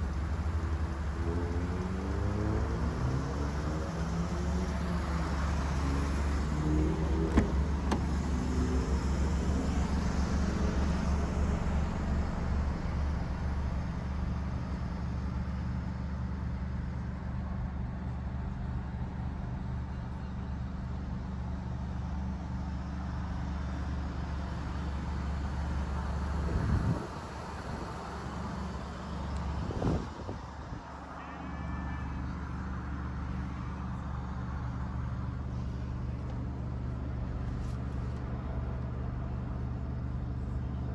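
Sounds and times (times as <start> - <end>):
car engine idling: 4.6 - 17.1, 33.4 - 40.9.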